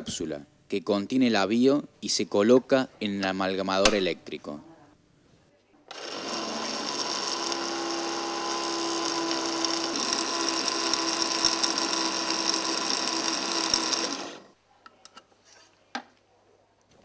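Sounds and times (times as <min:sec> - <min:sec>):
amalgamator mechanical whir: 0:05.9 - 0:14.5.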